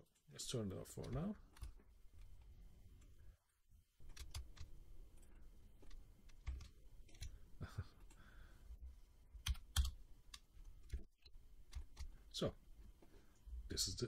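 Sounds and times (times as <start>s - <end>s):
low background hum: 0.0s - 14.0s
keyboard and mouse clicks: 1.0s - 3.2s, 4.0s - 7.4s, 9.4s - 12.2s.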